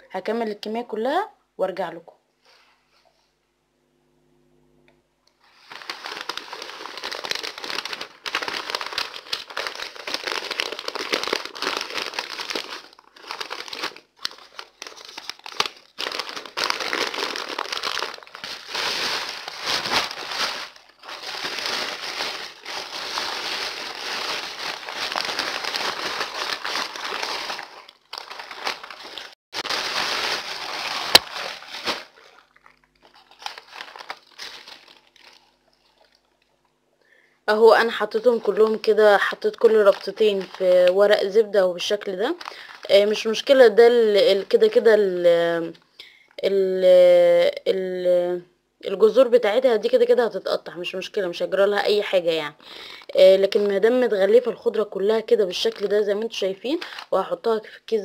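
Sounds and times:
baking paper crinkling: 5.4s - 36.5s, 37.8s - 44.8s, 53.1s - 57.4s.

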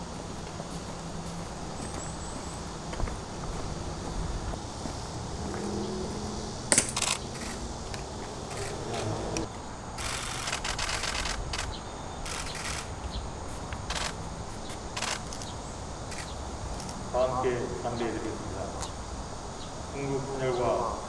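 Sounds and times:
camera shutters clicking: 6.7s - 7.6s, 10.0s - 13.0s, 13.9s - 14.2s, 15.0s - 17.0s.

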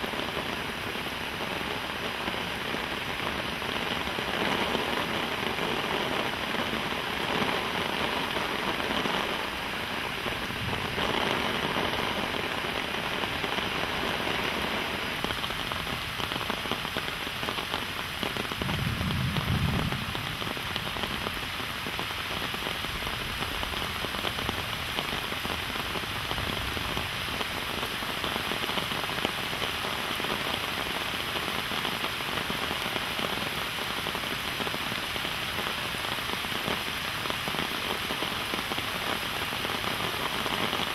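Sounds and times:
steady rain falling: 0.0s - 40.9s
low rumble: 18.6s - 21.2s.

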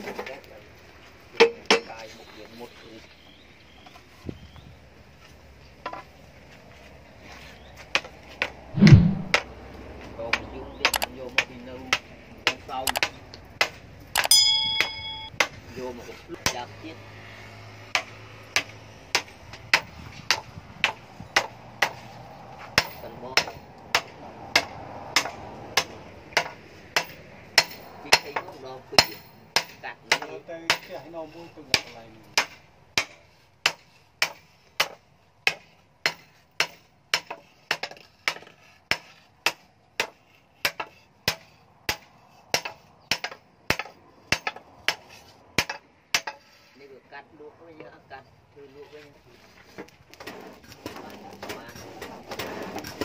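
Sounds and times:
hammer striking metal on anvil: 14.2s - 15.4s.

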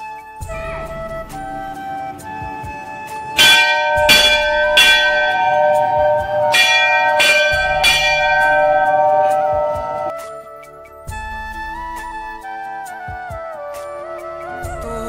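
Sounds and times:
large metal bell ringing: 3.0s - 10.2s.

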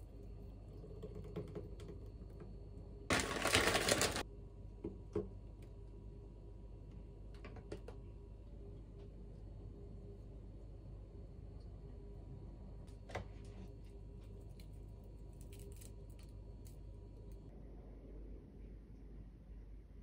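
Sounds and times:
frozen berries dropping: 3.1s - 4.2s
plastic bag crinkling: 3.1s - 4.2s.

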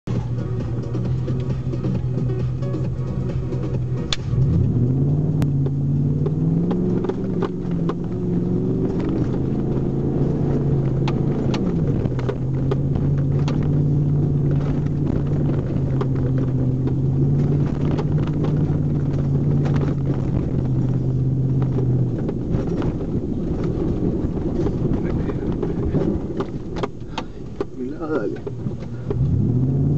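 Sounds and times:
truck engine revving: 0.1s - 27.4s, 28.0s - 29.9s.

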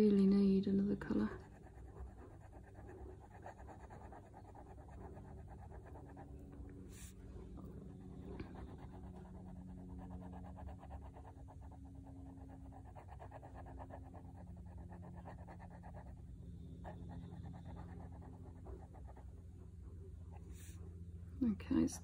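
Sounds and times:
low steady hum: 0.0s - 22.0s
pen scratching on paper: 1.0s - 19.4s.

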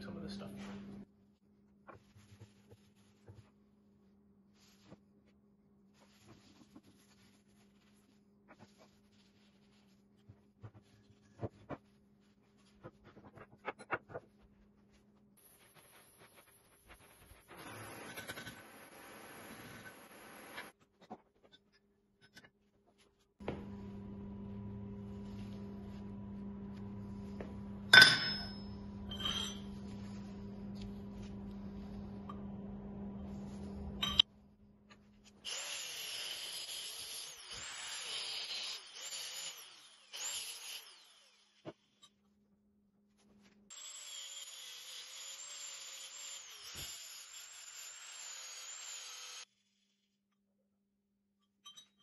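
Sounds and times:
motor hum: 23.4s - 27.9s
metal clang: 27.9s - 29.6s.

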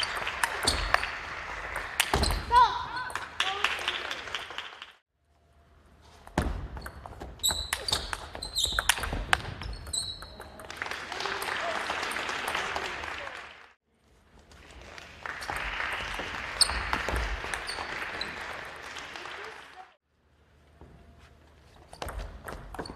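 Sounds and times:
shoes squeaking on wooden floor: 6.0s - 10.4s.

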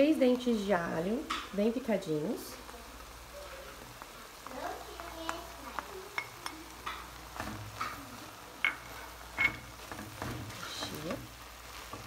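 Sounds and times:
meat sizzling in a pot: 0.0s - 12.0s
wooden spoon stirring: 2.6s - 12.0s.

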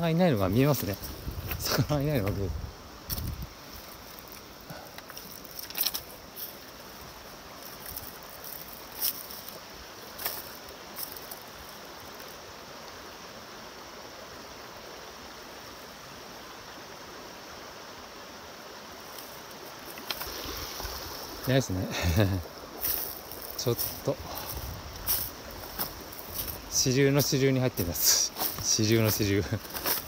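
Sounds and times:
stream flowing over stones: 0.0s - 30.0s
footsteps on gravel: 7.6s - 11.5s, 22.2s - 30.0s.

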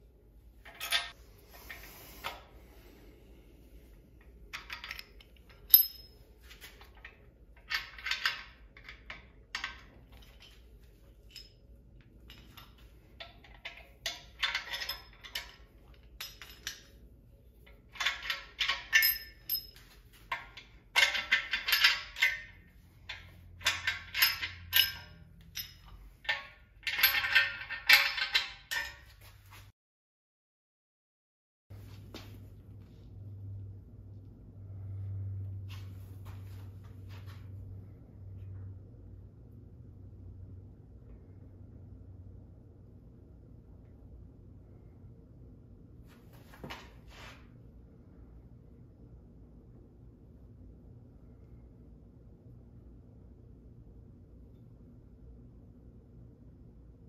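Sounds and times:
metal tools clinking: 0.6s - 1.8s, 4.5s - 17.0s, 17.7s - 29.3s.

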